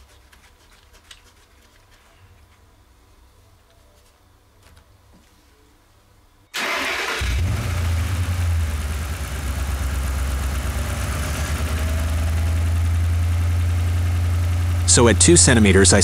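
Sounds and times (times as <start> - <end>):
car engine cranking: 6.6 - 15.2
car engine idling: 6.6 - 16.0.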